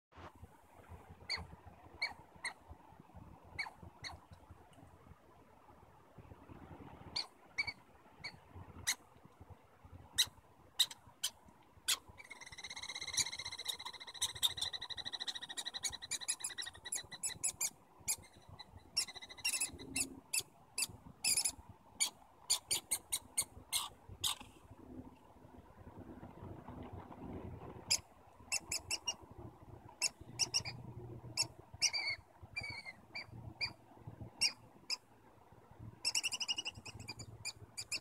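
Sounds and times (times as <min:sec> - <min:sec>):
squirrel chirps: 0:01.3 - 0:02.6, 0:03.5 - 0:04.4, 0:07.1 - 0:09.0, 0:10.1 - 0:24.5, 0:27.9 - 0:29.3, 0:29.9 - 0:35.0, 0:36.0 - 0:38.0
squirrel rattling trill: 0:01.3 - 0:02.6, 0:07.1 - 0:09.0, 0:10.1 - 0:24.4, 0:27.8 - 0:35.0, 0:36.0 - 0:38.0.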